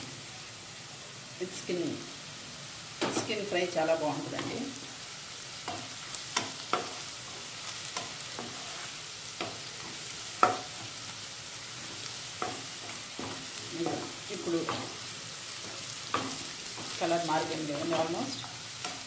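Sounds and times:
onions sizzling in oil: 0.0 - 19.0
wooden spatula knocking pan: 10.4 - 10.8.

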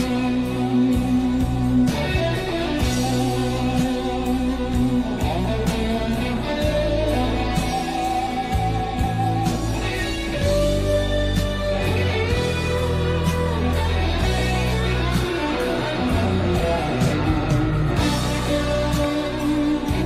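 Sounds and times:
bass and drums: 0.0 - 20.0
electric guitar solo: 0.0 - 20.0.

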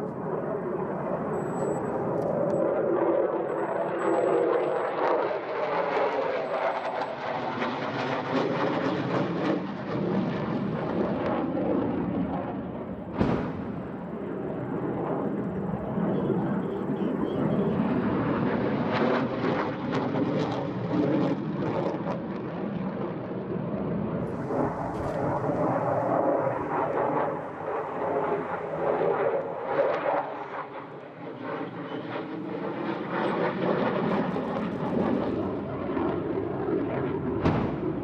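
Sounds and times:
jet passing overhead: 0.0 - 38.0
sharp bang: 13.2 - 14.0, 37.4 - 38.0.

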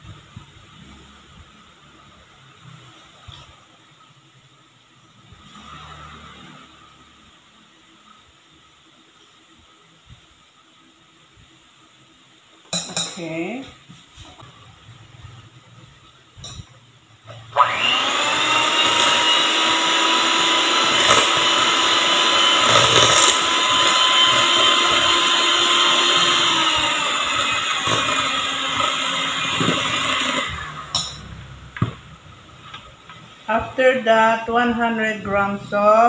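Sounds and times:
electric hand mixer whirring: 17.5 - 31.4.

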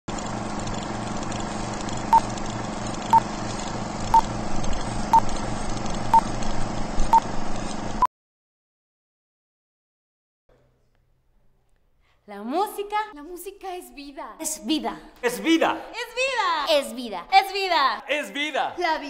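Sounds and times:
projector whir: 0.1 - 8.1.

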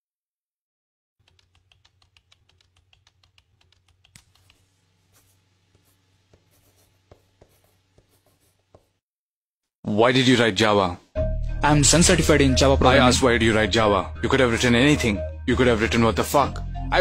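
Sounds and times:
laptop keyboard typing: 1.2 - 4.7
marker scratching on whiteboard: 2.9 - 9.0.

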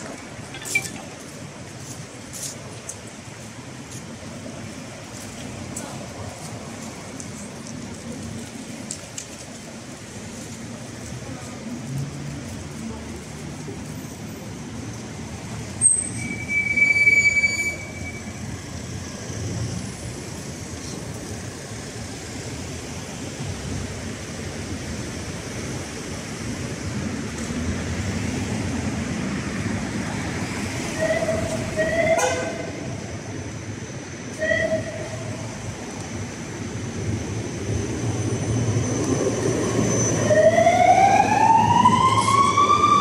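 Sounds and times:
tram wheel squeal: 0.0 - 1.5, 13.9 - 21.6, 30.4 - 43.0
traffic rumble: 0.0 - 43.0
tram running: 0.0 - 43.0.

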